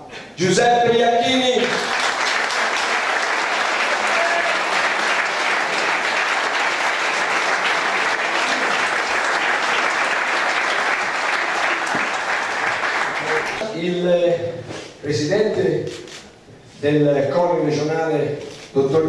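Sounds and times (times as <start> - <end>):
audience applauding: 1.6 - 13.7.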